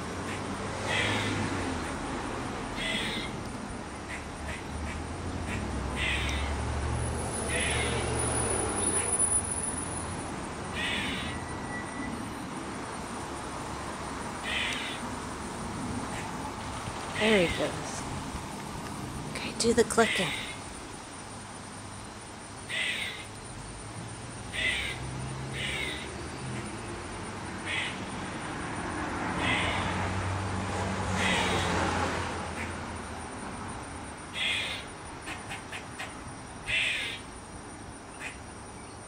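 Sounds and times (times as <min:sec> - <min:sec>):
squirrel clucks: 0:00.2 - 0:02.0, 0:02.8 - 0:06.6, 0:07.5 - 0:08.1, 0:10.7 - 0:11.4, 0:14.4 - 0:15.0, 0:19.9 - 0:20.6, 0:22.7 - 0:23.3, 0:24.5 - 0:26.8, 0:27.6 - 0:28.0, 0:29.4 - 0:29.9, 0:34.3 - 0:37.2
squirrel harsh calls: 0:00.2 - 0:02.0, 0:02.7 - 0:03.4, 0:04.0 - 0:06.6, 0:07.4 - 0:08.2, 0:10.7 - 0:11.6, 0:14.4 - 0:15.1, 0:16.1 - 0:16.4, 0:19.9 - 0:20.7, 0:22.7 - 0:23.3, 0:24.5 - 0:26.8, 0:27.6 - 0:28.0, 0:29.4 - 0:30.0, 0:31.2 - 0:31.8, 0:34.3 - 0:37.3, 0:38.2 - 0:38.4.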